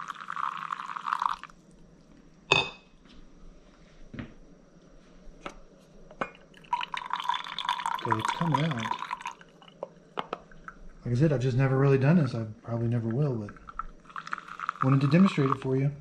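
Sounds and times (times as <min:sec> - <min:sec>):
coffee streaming into mug: 0:00.0 - 0:01.6, 0:06.2 - 0:11.1, 0:12.8 - 0:15.8
hot water pouring: 0:00.0 - 0:01.6, 0:06.4 - 0:15.9.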